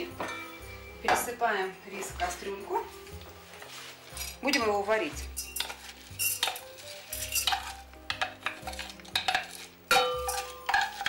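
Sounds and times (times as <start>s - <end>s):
wooden spoon scraping metal pot: 2.0s - 11.0s
spoon knocking against metal: 7.2s - 11.0s.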